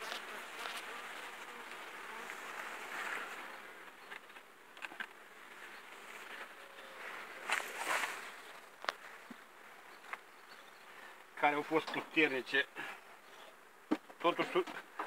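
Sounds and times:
bees buzzing: 0.0s - 3.7s.

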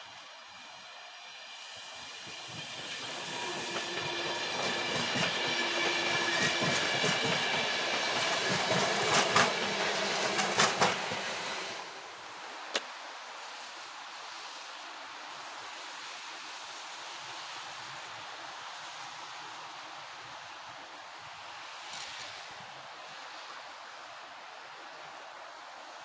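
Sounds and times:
electric train passing: 0.0s - 12.7s.

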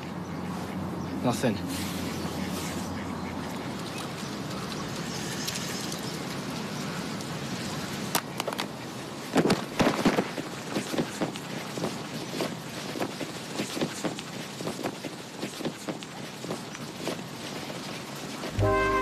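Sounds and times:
knocks and rustles: 9.3s - 18.6s
outdoor background hiss: 14.2s - 19.0s.

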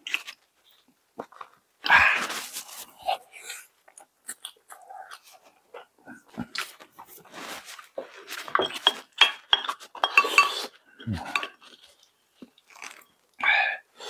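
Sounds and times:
soft chewing and mouth noises: 0.0s - 13.9s
spoon clinking against a bowl: 8.5s - 10.7s, 11.3s - 11.6s.

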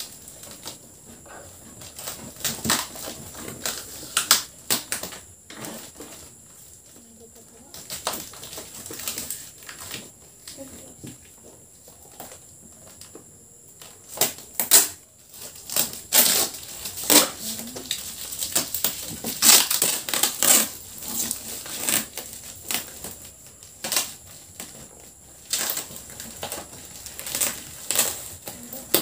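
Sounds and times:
packing tape ripping off cardboard: 0.0s - 6.5s, 7.7s - 10.9s, 13.8s - 29.0s.

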